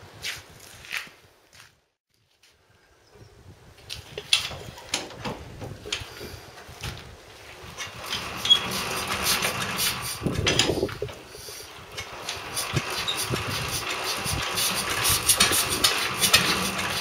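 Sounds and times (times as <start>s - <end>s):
engine clattering and firing unevenly: 4.5s - 17.0s.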